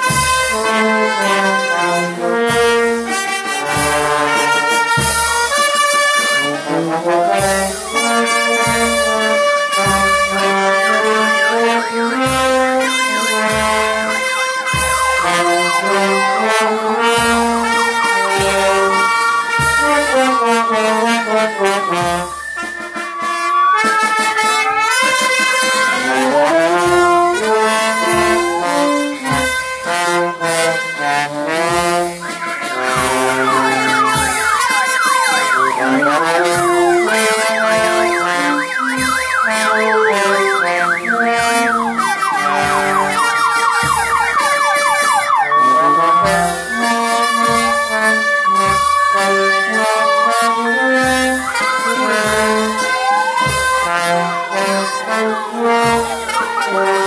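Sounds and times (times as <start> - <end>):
brass band playing: 0.0 - 57.0
bass drum beat: 31.5 - 48.0.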